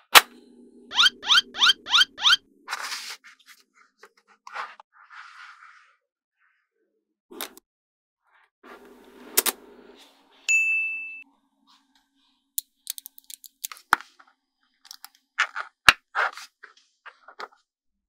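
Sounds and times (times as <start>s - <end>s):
bell-like ding: 10.5s - 11.3s
magnetic metal balls clicking: 12.6s - 13.8s.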